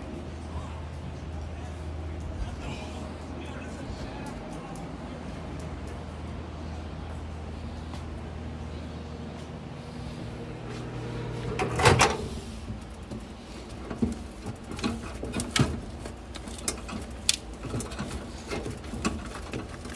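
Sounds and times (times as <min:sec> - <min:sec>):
steady low hum: 0:00.0 - 0:19.9
microwave door opening clunk: 0:11.4 - 0:12.4.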